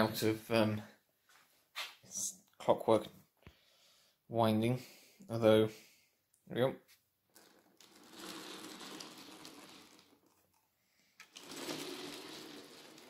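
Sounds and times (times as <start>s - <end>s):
clockwork model train whirring: 11.2s - 13.0s.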